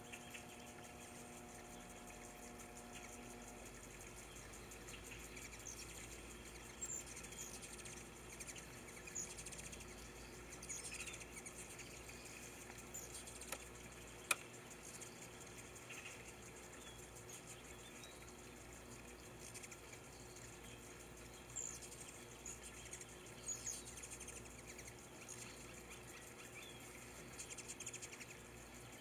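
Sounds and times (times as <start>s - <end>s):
hummingbirds chirping: 0.0s - 29.0s
water trickling: 0.0s - 29.0s
sharp click: 14.2s - 14.5s.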